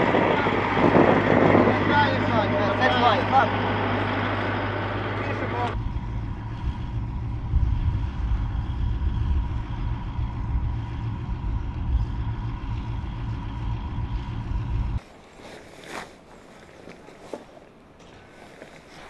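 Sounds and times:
heavy vehicle engine rumbling: 0:00.0 - 0:15.0.

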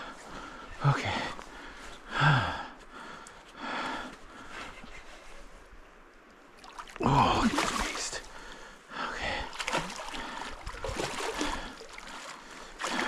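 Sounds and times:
man breathing hard: 0:00.0 - 0:04.8, 0:08.3 - 0:13.0.

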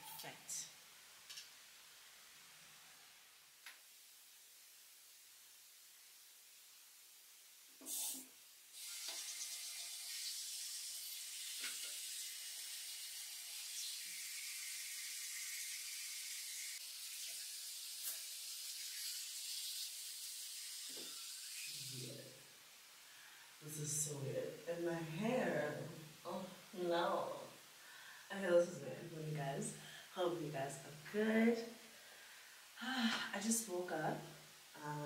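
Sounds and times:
running water: 0:07.8 - 0:22.6.

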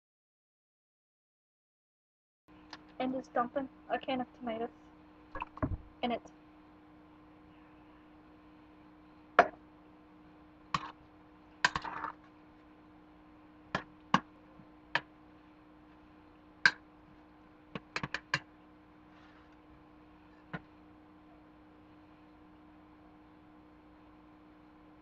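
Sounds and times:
faint steady hum: 0:02.5 - 0:25.0.

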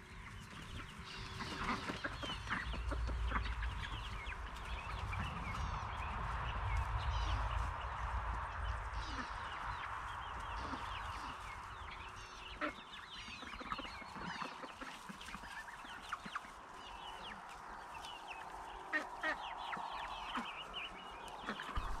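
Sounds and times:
young chickens clucking and cheeping: 0:00.0 - 0:22.0.

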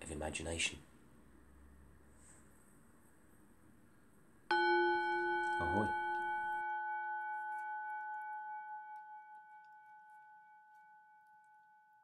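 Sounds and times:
bell ringing: 0:04.5 - 0:10.7.

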